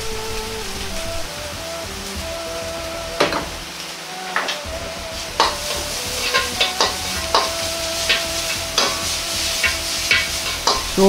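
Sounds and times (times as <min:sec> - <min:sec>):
meat sizzling in a wok: 0:01.3 - 0:11.0
metal ladle scraping a wok: 0:05.3 - 0:11.0.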